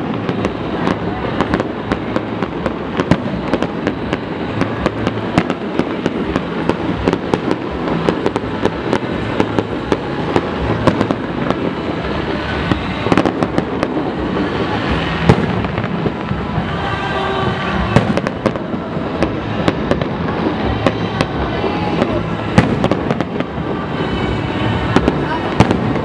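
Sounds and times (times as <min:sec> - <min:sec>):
fireworks bangs and crackles: 0:00.0 - 0:26.0.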